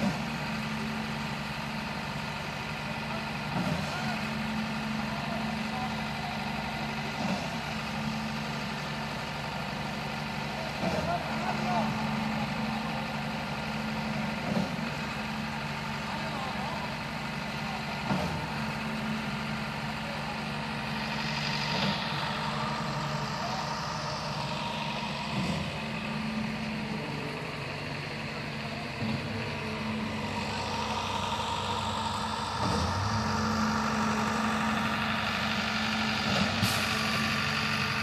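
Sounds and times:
heavy diesel engine running: 0:00.0 - 0:38.0
pump clunking: 0:32.6 - 0:33.4.

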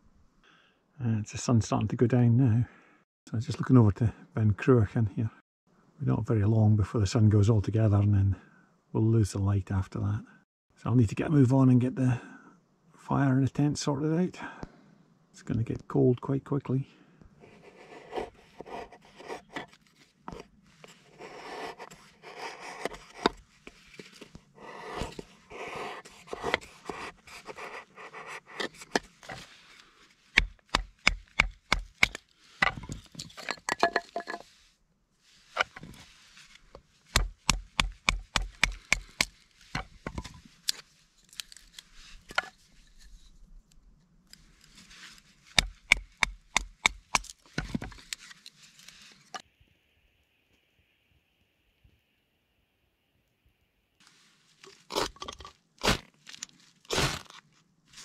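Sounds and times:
scraping and rustling: 0:17.7 - 0:30.3, 0:32.2 - 0:34.7.

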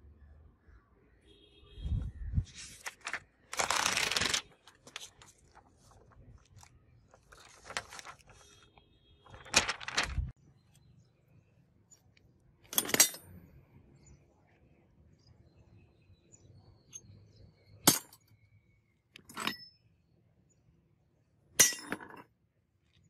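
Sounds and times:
paper rustling: 0:02.5 - 0:10.4.

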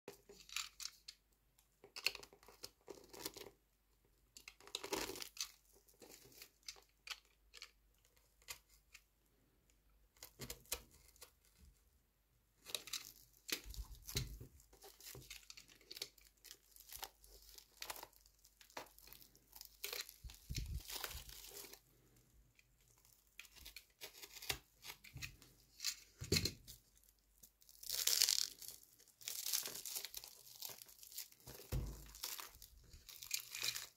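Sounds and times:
plastic wrap crinkling: 0:12.6 - 0:21.9, 0:22.8 - 0:33.9.

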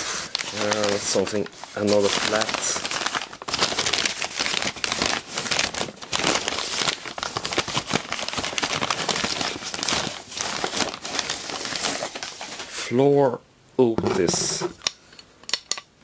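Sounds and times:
packing paper crinkling: 0:00.0 - 0:12.7.

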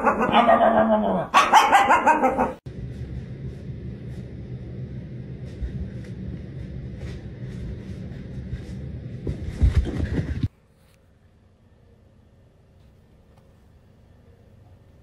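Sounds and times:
steady low rumble: 0:02.7 - 0:10.5.

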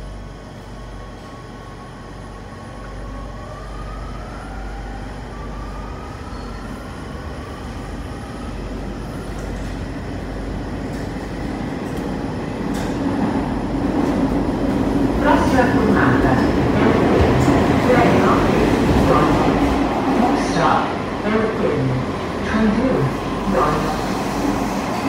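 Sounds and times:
train running rumble: 0:07.1 - 0:25.0.

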